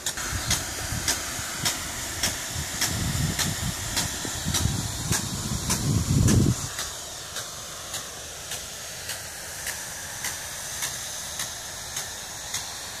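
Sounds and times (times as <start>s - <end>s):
sprinkler arm ticking: 0.0s - 13.0s
water spray hissing: 0.0s - 13.0s.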